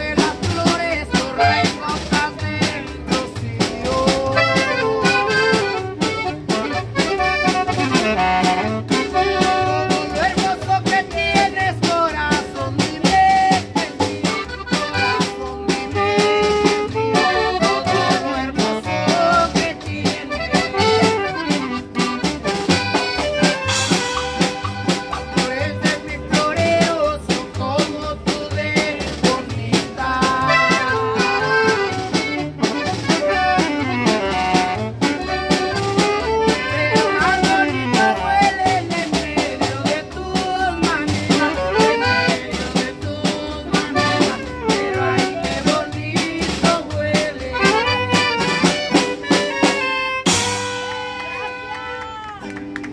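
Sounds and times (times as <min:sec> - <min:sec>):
drum kit: 0:00.0 - 0:51.1
acoustic guitar: 0:00.0 - 0:52.9
upright bass: 0:00.0 - 0:52.9
piano accordion: 0:01.0 - 0:03.1, 0:04.2 - 0:10.1, 0:13.6 - 0:26.8, 0:30.2 - 0:38.5, 0:41.2 - 0:42.9, 0:43.7 - 0:50.7
alto saxophone: 0:04.3 - 0:10.1, 0:14.5 - 0:19.4, 0:20.2 - 0:25.1, 0:30.4 - 0:38.7, 0:47.6 - 0:52.3.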